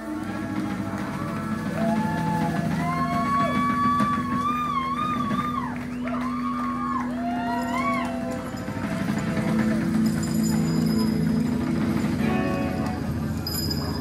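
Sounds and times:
rock band playing: 7.2s - 14.0s.

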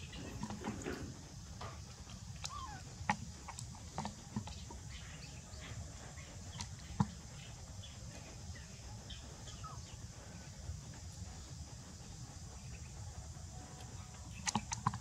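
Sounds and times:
faint chirps and squeaks: 0.0s - 10.5s
steady low hum: 0.0s - 15.0s.

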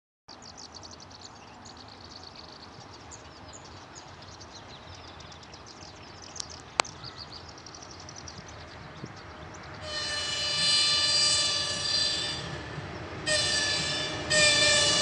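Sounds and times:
low outdoor background noise: 0.3s - 9.9s
small birds chirping: 0.3s - 9.9s.

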